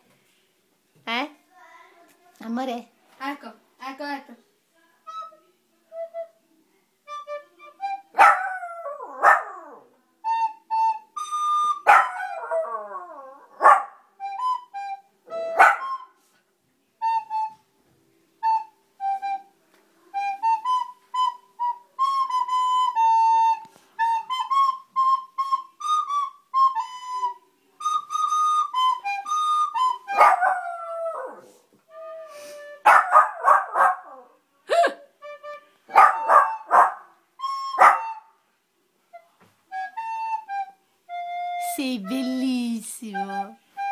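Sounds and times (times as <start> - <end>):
flute-like melody: 5.0 - 16.4, 17.0 - 43.9
dog howling: 8.2 - 9.9, 11.9 - 13.7, 30.1 - 31.5, 32.9 - 34.4, 35.9 - 37.0.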